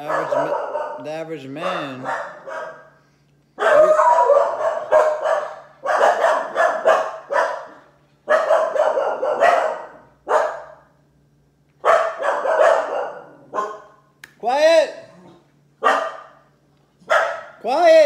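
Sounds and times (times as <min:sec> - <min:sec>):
dog barking: 0:00.0 - 0:03.0, 0:03.6 - 0:10.9, 0:11.8 - 0:14.1, 0:15.8 - 0:17.6.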